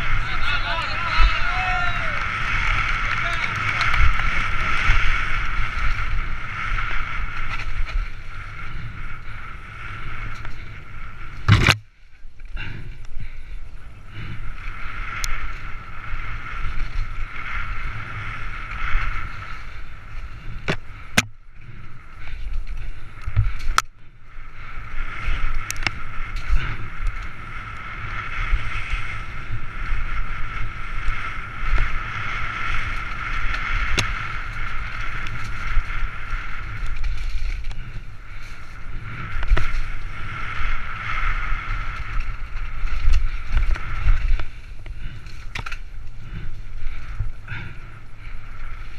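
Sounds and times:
bike trail rumble: 0:00.0 - 0:48.9
wind buffeting: 0:00.0 - 0:48.9
bike knocking over bumps: 0:11.4 - 0:11.9.

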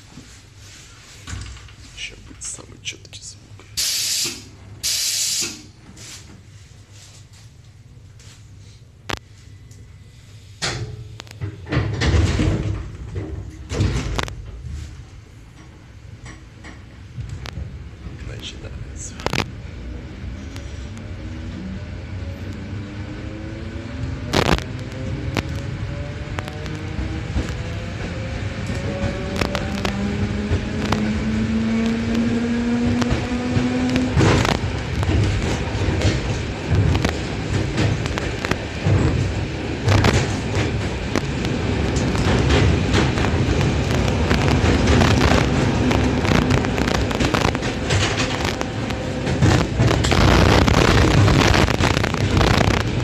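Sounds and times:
train wheels on rails: 0:03.8 - 0:08.4, 0:10.4 - 0:53.0
microphone crackles: 0:49.4 - 0:53.0.

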